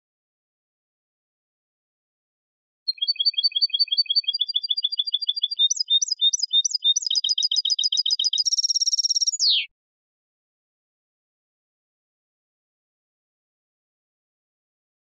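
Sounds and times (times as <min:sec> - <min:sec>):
goldfinch singing: 0:02.9 - 0:09.7.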